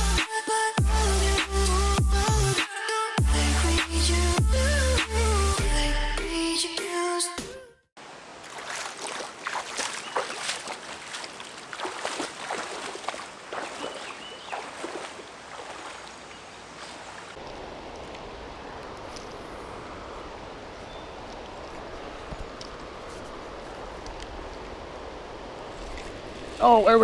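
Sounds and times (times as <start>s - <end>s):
river water splashing over rocks: 8.0s - 19.4s.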